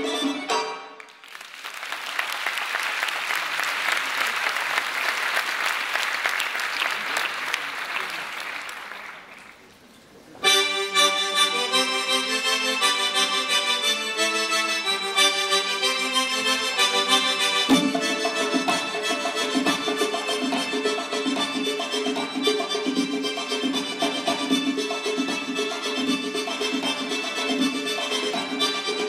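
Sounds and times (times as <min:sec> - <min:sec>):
folk dance music: 0:00.0 - 0:09.7, 0:10.4 - 0:29.0
audience applauding: 0:01.0 - 0:09.8.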